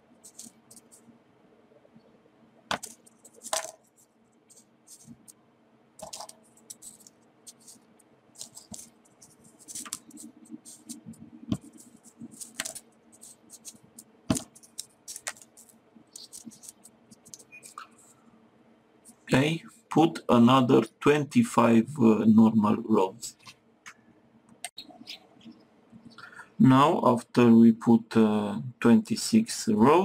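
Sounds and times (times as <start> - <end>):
paper clicks and taps: 2.7 - 3.8, 6.0 - 7.8, 8.4 - 17.8.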